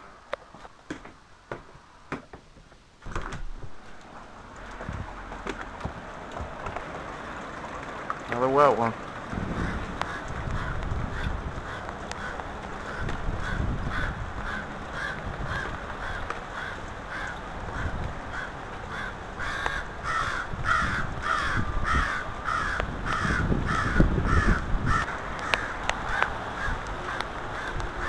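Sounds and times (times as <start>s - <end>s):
crows cawing: 9.3s - 28.0s.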